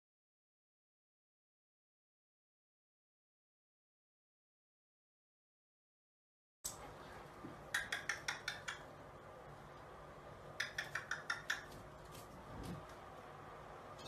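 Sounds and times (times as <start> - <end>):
sharp clicking taps: 7.5 - 8.9, 10.6 - 11.8.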